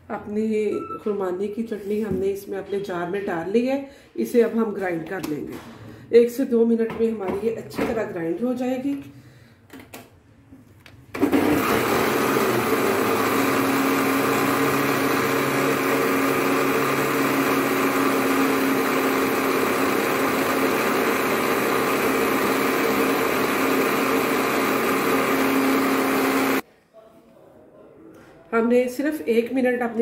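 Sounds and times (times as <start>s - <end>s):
blender running: 11.2s - 26.6s.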